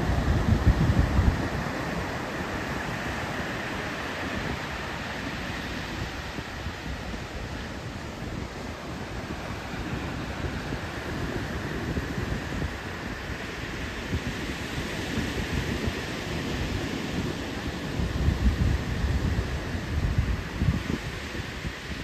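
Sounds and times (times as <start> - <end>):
small surf breaking on beach: 0.0 - 22.0
wind rumbling on microphone: 0.0 - 22.0.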